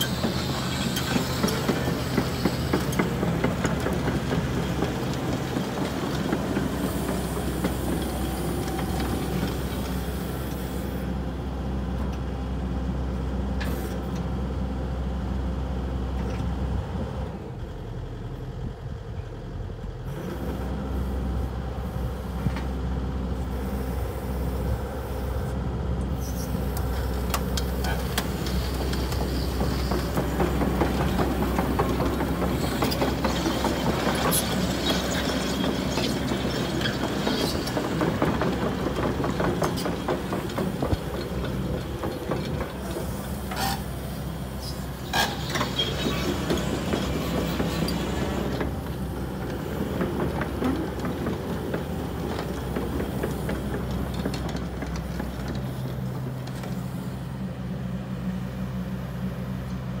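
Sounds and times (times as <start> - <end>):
metallic clatter of steel tracks: 0.0 - 11.1, 23.4 - 57.5
excavator diesel engine humming: 0.0 - 60.0.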